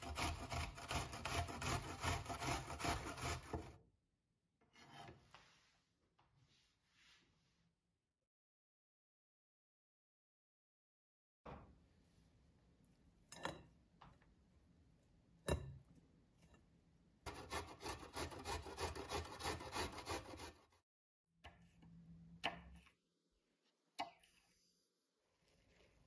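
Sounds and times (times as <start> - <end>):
carrot rasping on metal grater: 0.0 - 3.7, 17.3 - 20.7.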